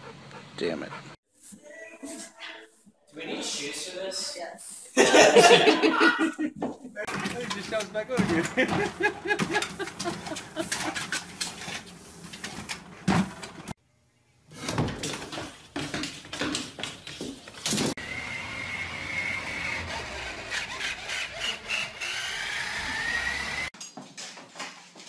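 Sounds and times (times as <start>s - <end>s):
knocks and thumps: 6.6s - 11.1s
toy truck motor whining: 18.0s - 23.7s.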